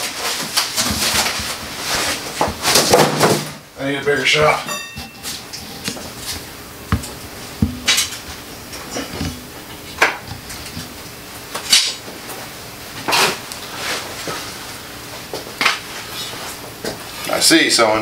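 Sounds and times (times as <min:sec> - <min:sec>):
tools clanking on workbench: 0:04.2 - 0:11.0.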